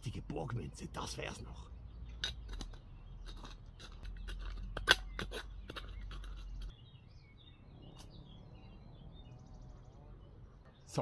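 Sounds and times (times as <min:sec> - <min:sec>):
stones crunching and scraping: 0:02.1 - 0:06.8.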